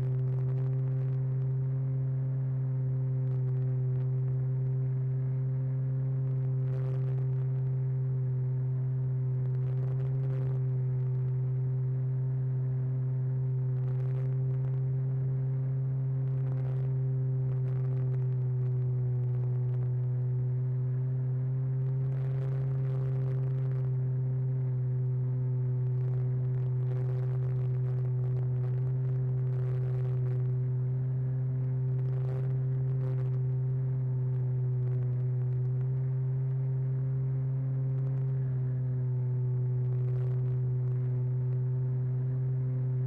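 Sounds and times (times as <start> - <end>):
faint ticks: 34.3 - 36.8.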